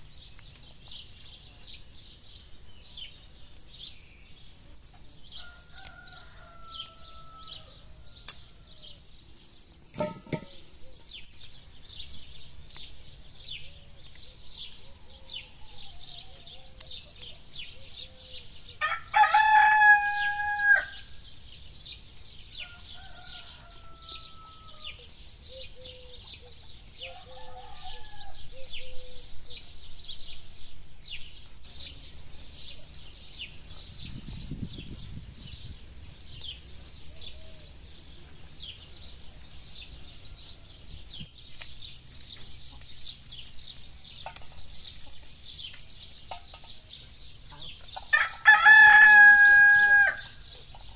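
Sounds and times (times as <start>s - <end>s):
small birds chirping: 0.0s - 50.9s
distant rooster crowing: 5.3s - 9.0s, 18.8s - 21.1s, 22.6s - 25.1s, 27.0s - 29.2s, 48.1s - 50.4s
rooster crowing: 5.4s - 8.0s, 18.8s - 21.1s, 22.6s - 25.0s, 27.0s - 28.5s, 48.1s - 50.4s.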